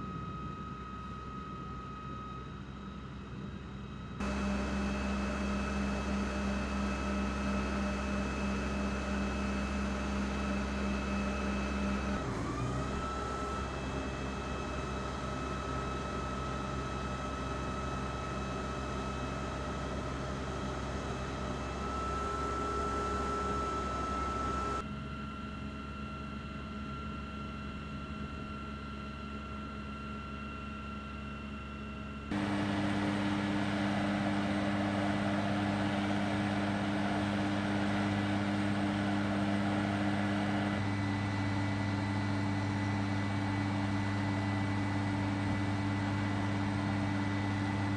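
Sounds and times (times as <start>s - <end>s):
truck engine low hum: 0.0s - 24.9s, 27.6s - 47.9s
machine drone: 4.2s - 24.8s, 32.3s - 47.9s.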